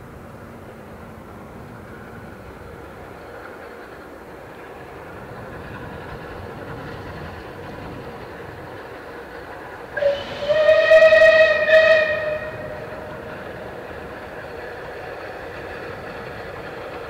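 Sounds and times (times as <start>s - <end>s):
steam locomotive running: 0.0s - 17.0s
steam whistle: 10.0s - 13.0s.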